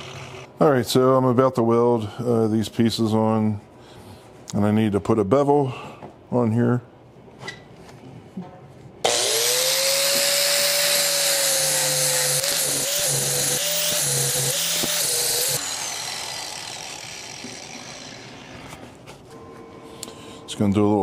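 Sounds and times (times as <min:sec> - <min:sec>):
angle grinder grinding steel: 0:09.1 - 0:18.8.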